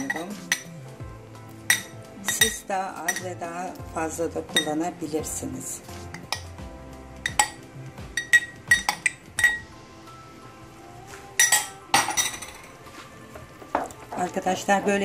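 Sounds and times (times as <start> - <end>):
glass cup clinking on metal pan: 0.0 - 0.7, 1.7 - 3.4, 7.2 - 7.6, 8.2 - 9.6, 11.4 - 12.6
background music: 0.0 - 15.0.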